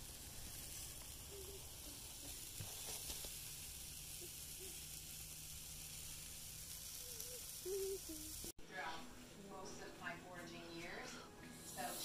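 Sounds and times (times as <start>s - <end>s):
food sizzling on a grill: 0.0s - 8.6s, 11.5s - 12.0s.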